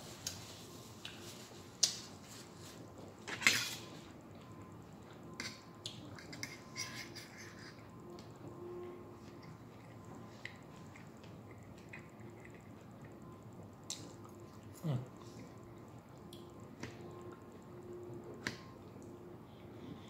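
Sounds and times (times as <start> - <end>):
fork scraping a plate: 6.2 - 7.9.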